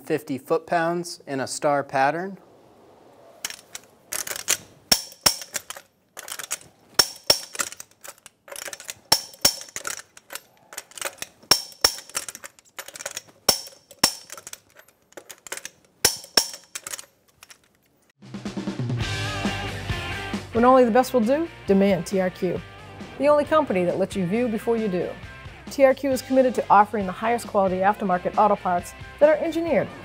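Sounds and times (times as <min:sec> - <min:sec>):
metal socket rattling: 0:03.4 - 0:18.0.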